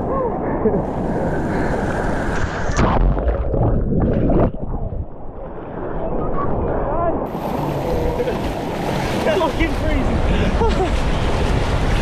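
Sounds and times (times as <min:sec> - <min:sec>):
ocean surf: 0:00.0 - 0:02.9, 0:05.3 - 0:12.0
wind rumbling on microphone: 0:00.0 - 0:12.0.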